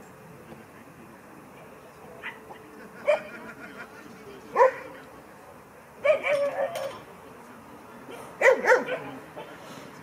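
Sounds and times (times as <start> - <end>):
dog barking: 4.6 - 4.9, 6.0 - 6.8, 8.1 - 9.1.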